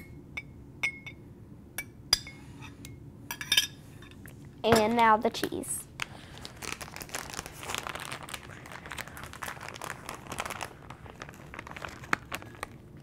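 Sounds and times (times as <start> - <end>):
plastic bag crinkling: 6.0 - 13.0.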